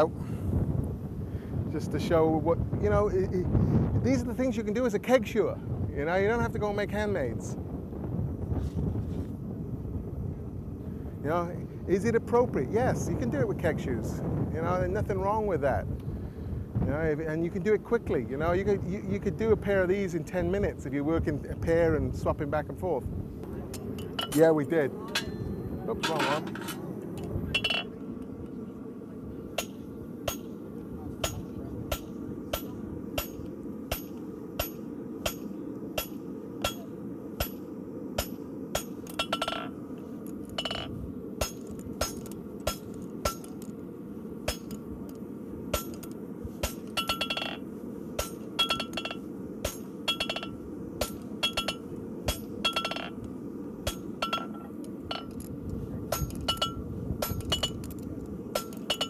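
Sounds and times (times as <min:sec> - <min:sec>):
steady low rumble: 0:00.0 - 0:59.0
hammer striking steel on anvil: 0:25.1 - 0:26.8, 0:27.6 - 0:28.0, 0:29.6 - 0:30.6, 0:31.2 - 0:39.8, 0:40.6 - 0:43.5, 0:44.4 - 0:44.8, 0:45.7 - 0:47.6, 0:48.2 - 0:53.2, 0:53.8 - 0:55.4, 0:56.1 - 0:57.9, 0:58.5 - 0:59.0.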